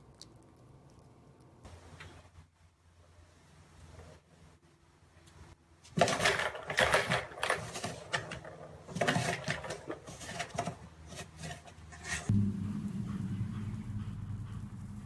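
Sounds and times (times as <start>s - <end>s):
plastic balls rattling in toy track: 5.9s - 10.8s.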